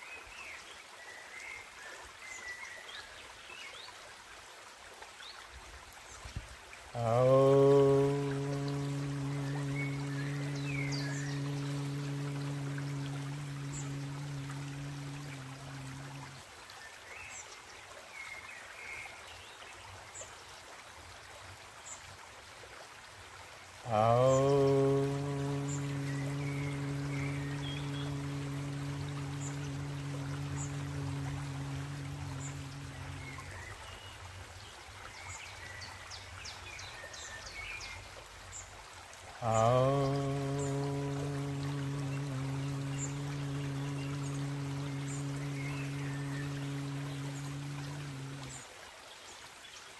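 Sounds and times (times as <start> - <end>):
creek running water: 0.0 - 49.9
man chanting om: 6.9 - 16.5, 23.8 - 34.0, 39.4 - 48.7
birds chirping: 7.0 - 16.4, 23.9 - 33.7.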